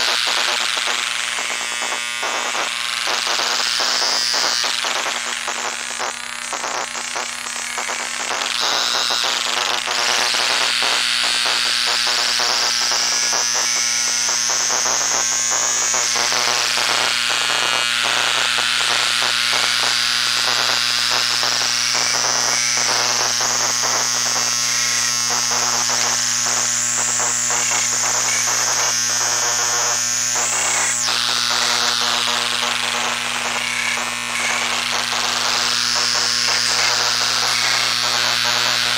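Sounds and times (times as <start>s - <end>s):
high electronic whine gliding: 21.6s - 38.9s.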